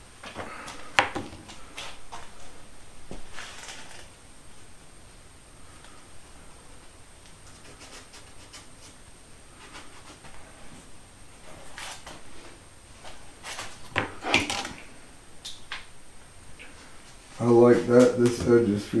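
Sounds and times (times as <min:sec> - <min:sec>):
wooden board scraping: 0:03.1 - 0:04.1.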